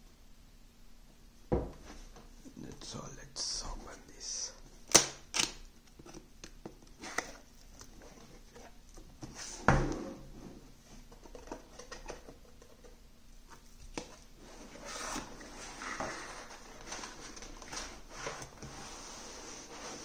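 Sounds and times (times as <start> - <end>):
cardboard box scrapes and rustles: 14.4 - 20.0.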